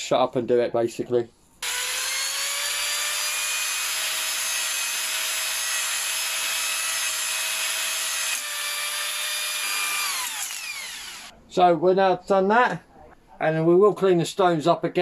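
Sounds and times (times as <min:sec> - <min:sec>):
electric drill motor whine: 0:01.6 - 0:11.3.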